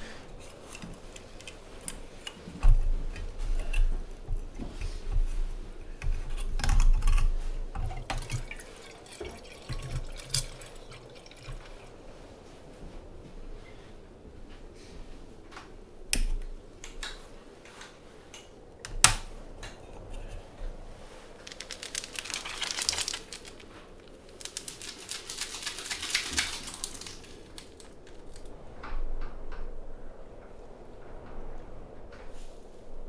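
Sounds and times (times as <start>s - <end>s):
crinkly nylon crackling: 20.8s - 28.6s.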